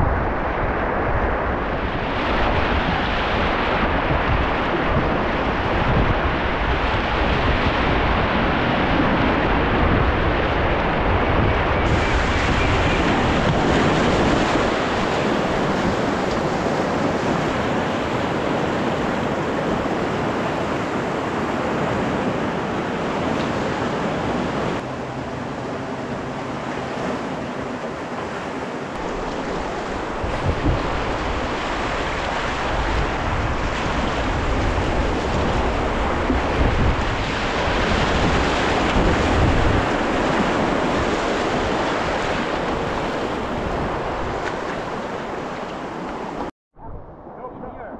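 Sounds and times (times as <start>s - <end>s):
wind buffeting microphone: 0.0s - 47.9s
whitewater rapids rushing: 11.8s - 46.5s.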